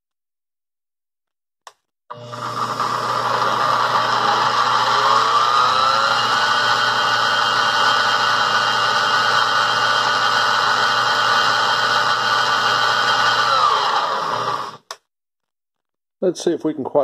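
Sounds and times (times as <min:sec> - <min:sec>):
milling machine gear whine: 0:02.1 - 0:09.5.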